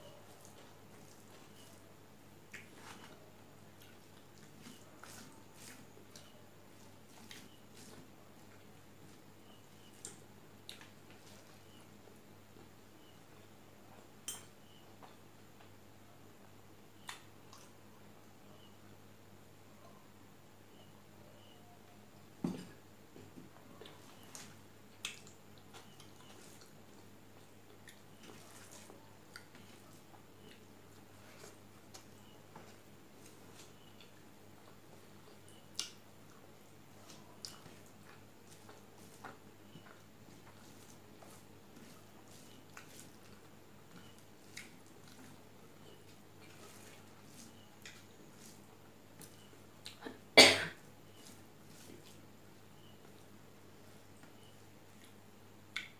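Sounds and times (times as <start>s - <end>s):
fingers mixing rice on steel plate: 0.1s - 1.9s, 3.8s - 11.8s, 23.8s - 50.0s, 51.1s - 52.2s
wet chewing clicks: 23.8s - 26.8s, 27.4s - 32.8s, 33.6s - 36.4s, 37.0s - 48.6s, 49.2s - 50.1s.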